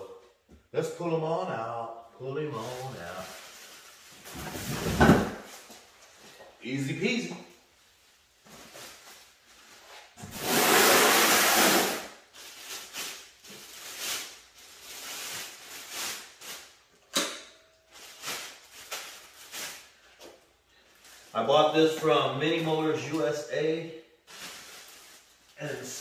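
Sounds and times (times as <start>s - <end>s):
plastic wrap rustling: 2.5s - 6.3s, 7.7s - 17.1s, 17.8s - 23.5s, 24.1s - 26.0s
loud scrape: 10.2s - 12.2s.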